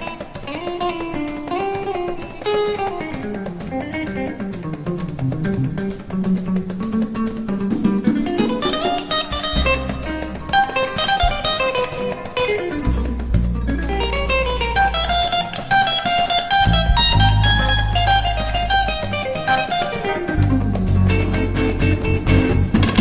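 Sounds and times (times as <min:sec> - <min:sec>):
electric guitar fast runs: 0:00.0 - 0:23.0
low bass notes: 0:16.6 - 0:19.0, 0:20.4 - 0:23.0.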